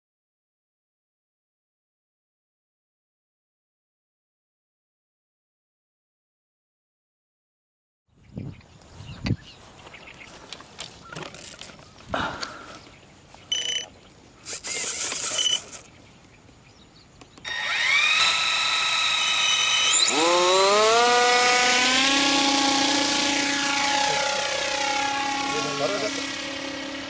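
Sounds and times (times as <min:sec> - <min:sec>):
lower electric motor whine: 0:17.3 - 0:27.0
high electric motor whine: 0:17.4 - 0:27.0.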